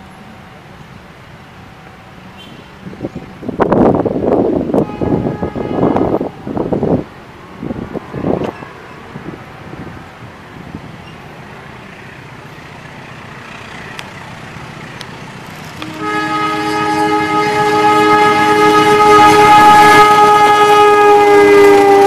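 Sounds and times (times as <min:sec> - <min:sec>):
diesel locomotive engine rumble: 0:00.0 - 0:22.0
train chord horn: 0:04.8 - 0:06.3, 0:15.8 - 0:22.0.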